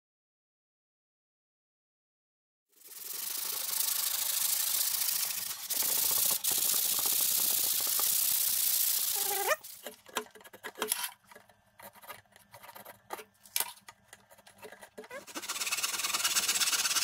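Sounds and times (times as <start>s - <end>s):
sanding block scrubbing wood: 2.9s - 9.8s, 15.2s - 17.0s.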